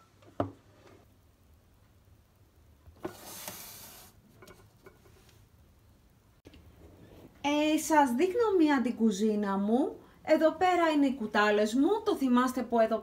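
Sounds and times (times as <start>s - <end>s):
scrape or rustle: 3.0s - 5.4s.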